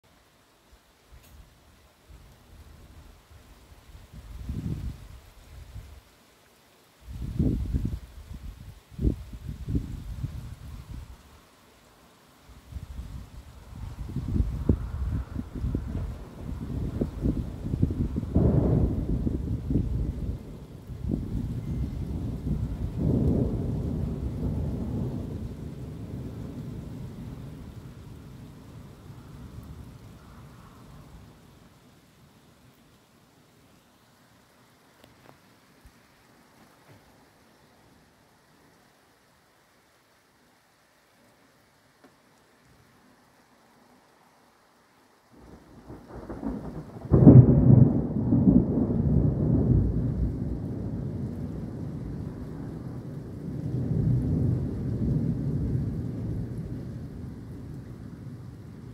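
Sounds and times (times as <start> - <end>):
thunder rumbling: 12.7 - 31.4, 45.4 - 58.9
thunder clap: 14.1 - 27.7, 45.8 - 58.6.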